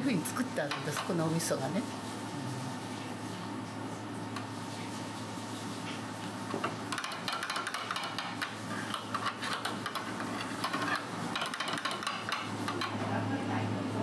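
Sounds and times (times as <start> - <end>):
utensil clicking in metal bowl: 6.9 - 13.0.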